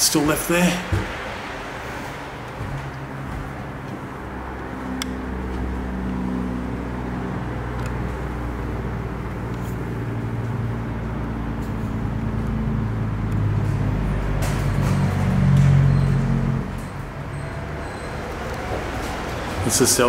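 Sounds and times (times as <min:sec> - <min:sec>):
vehicle engine running: 0:02.6 - 0:20.0.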